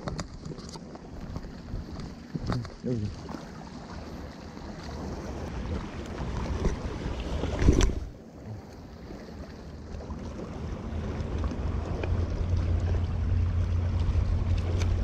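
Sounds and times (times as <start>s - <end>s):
waves washing against rocks: 0.0s - 15.0s
wind rumbling on microphone: 3.8s - 15.0s.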